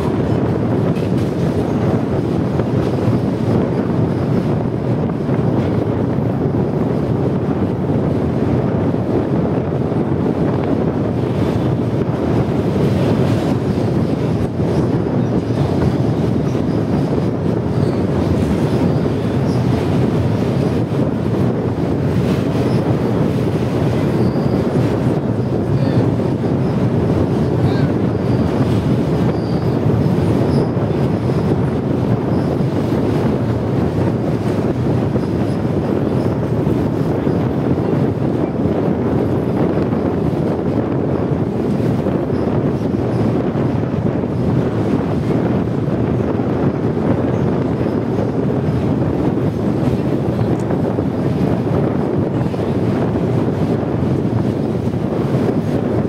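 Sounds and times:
train wheels on rails: 0.0 - 7.0.

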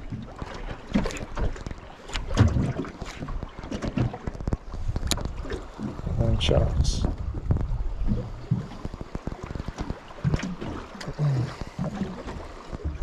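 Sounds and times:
water splashing against boat hull: 0.0 - 13.0
knocks on boat: 0.9 - 6.0
wind buffeting microphone: 1.5 - 13.0.

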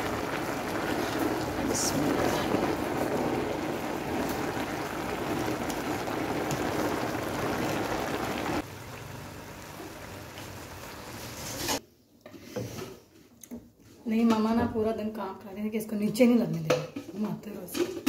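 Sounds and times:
food sizzling and bubbling in pot: 0.0 - 11.8.

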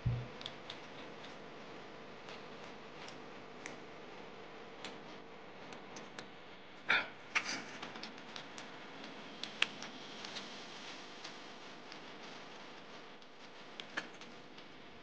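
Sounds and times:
mouth clicks while chewing: 0.4 - 1.4.

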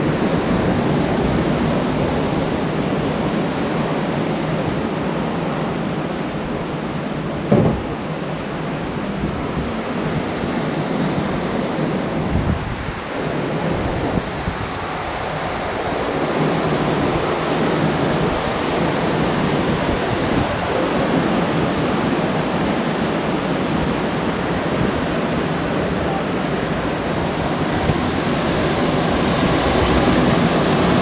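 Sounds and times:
wind buffeting microphone: 0.0 - 31.0
surf breaking over rocks: 7.3 - 8.8.

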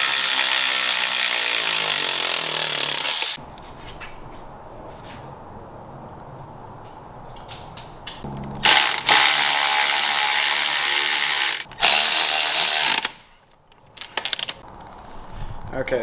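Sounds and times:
electric ratchet whining and rattling: 0.0 - 3.4, 8.4 - 13.3.

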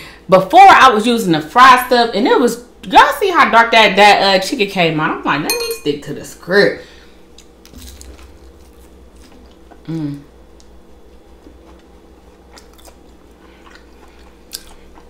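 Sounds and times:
closed-mouth hum: 6.8 - 15.0
crunching of fried food: 7.3 - 9.9, 10.6 - 15.0
wet mouth chewing sounds: 11.4 - 15.0.

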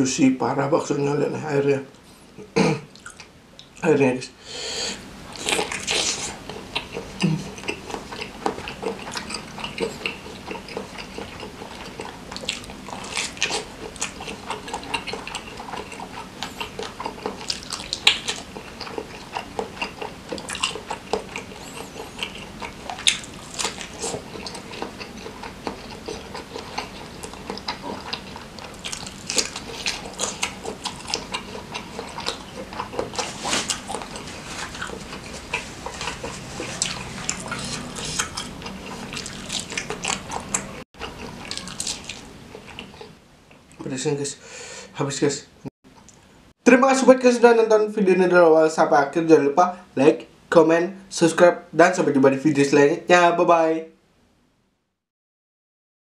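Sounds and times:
wet chewing and lip smacking: 2.9 - 3.8, 5.3 - 43.8.

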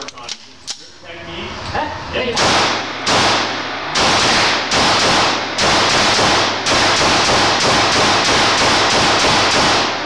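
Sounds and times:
pistol shots ringing indoors: 2.4 - 10.0.

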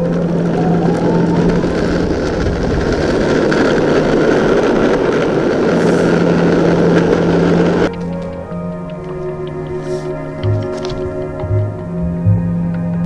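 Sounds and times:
skateboard wheels on pavement: 0.0 - 13.0.

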